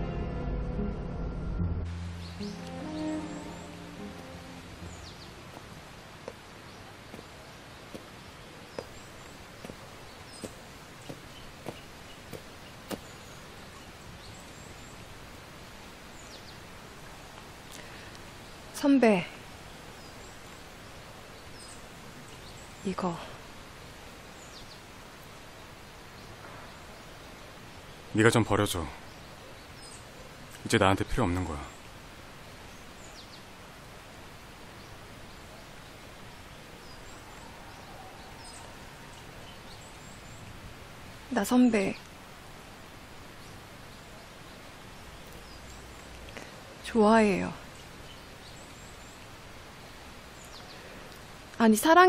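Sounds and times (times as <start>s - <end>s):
steady background hiss: 1.9s - 52.0s
faint bird chirps: 34.7s - 40.6s.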